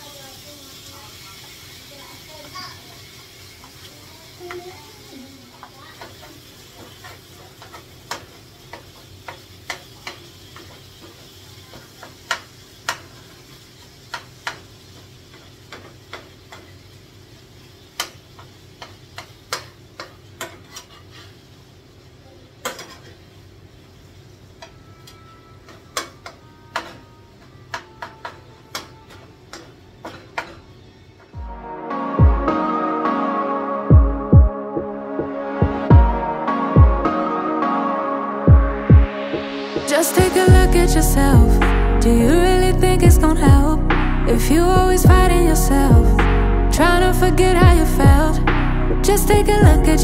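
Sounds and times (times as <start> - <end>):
low steady sizzle: 0.0 - 32.0.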